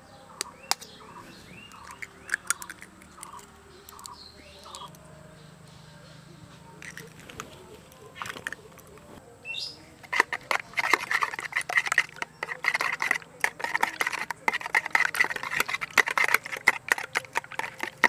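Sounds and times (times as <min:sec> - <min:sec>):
whisk beating eggs in bowl: 0:10.0 - 0:18.0.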